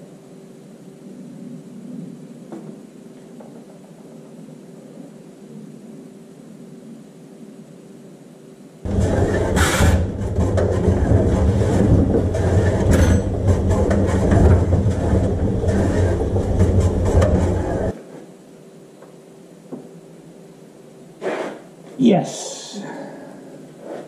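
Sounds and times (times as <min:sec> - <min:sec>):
machine humming and rattling: 0:08.8 - 0:18.0.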